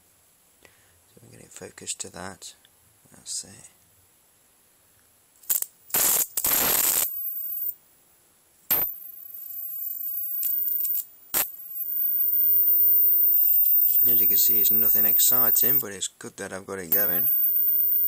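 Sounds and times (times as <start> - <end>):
electrical arc crackling: 5.4 - 7.7, 8.7 - 9.2, 10.4 - 15.8, 16.9 - 18.0
high-pitched whine with sizzle: 5.4 - 7.8, 8.7 - 15.8, 16.9 - 18.0.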